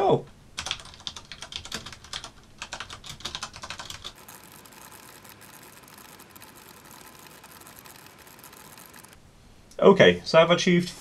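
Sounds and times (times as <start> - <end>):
mechanical keyboard typing: 0.6 - 9.2.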